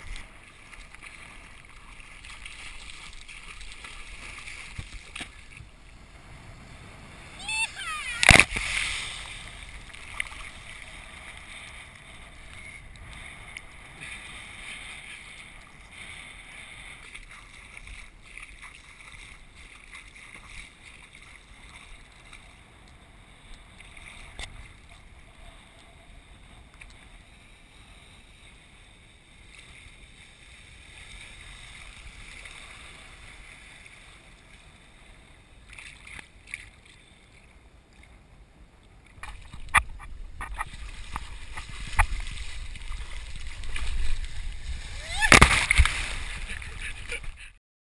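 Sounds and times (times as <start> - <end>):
water sloshing and lapping: 0.0 - 5.7, 8.2 - 26.0, 35.6 - 38.1, 39.0 - 47.5.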